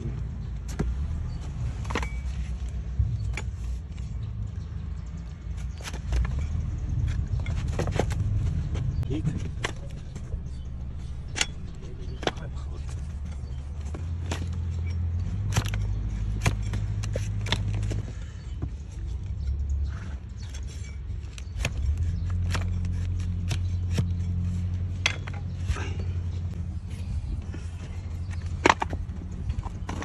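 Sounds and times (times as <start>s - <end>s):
steady low hum: 6.9s - 30.0s
hoof shovel scraping hoof: 14.3s - 25.9s.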